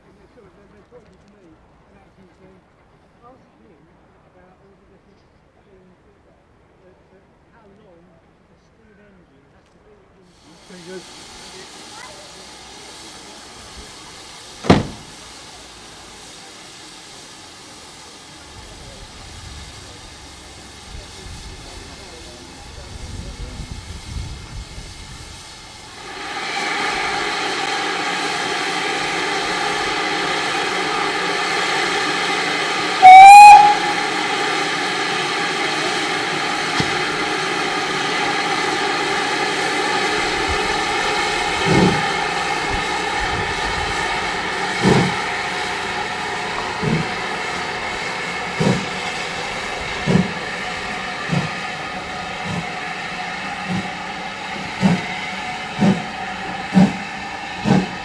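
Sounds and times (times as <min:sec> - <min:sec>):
steam hissing: 0:10.2 - 0:58.0
locomotive exhaust beats: 0:10.6 - 0:58.0
steam whistle blast: 0:30.2 - 0:36.9.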